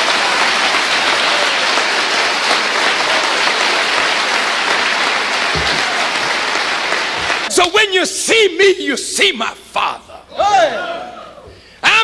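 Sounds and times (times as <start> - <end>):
large audience applauding: 0.0 - 7.5.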